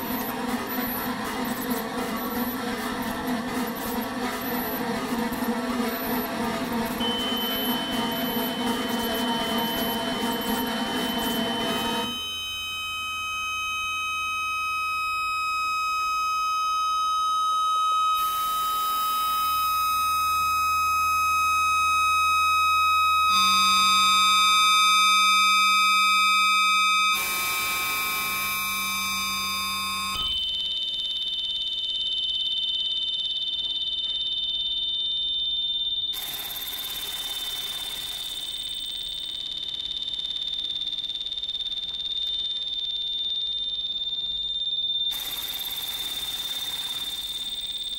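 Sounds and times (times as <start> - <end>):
synthesizer drones: 0.0 - 12.3, 23.3 - 30.4
piercing high steady tones: 0.0 - 47.9.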